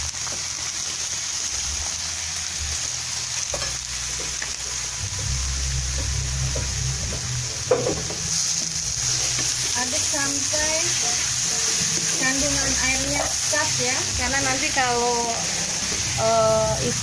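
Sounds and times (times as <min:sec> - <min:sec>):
food sizzling in oil: 0:00.0 - 0:17.0
low rumble: 0:03.8 - 0:11.0.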